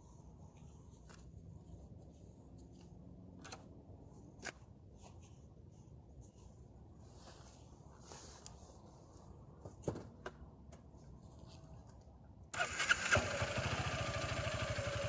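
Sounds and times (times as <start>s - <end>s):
gloves and jacket rustling: 4.0s - 9.5s.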